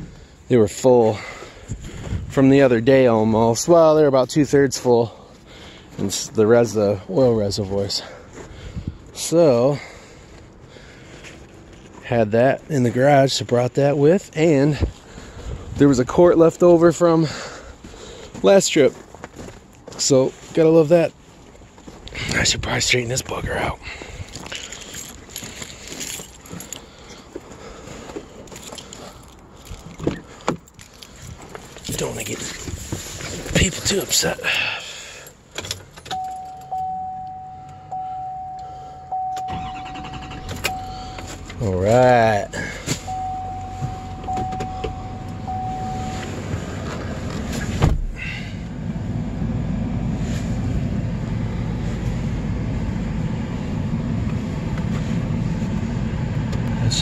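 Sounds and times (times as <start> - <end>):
truck engine rumble: 0.0 - 57.0
footsteps on packed snow: 17.6 - 22.1
light jingling: 35.1 - 37.9
steady high tone: 36.1 - 46.9
thump: 47.7 - 48.2.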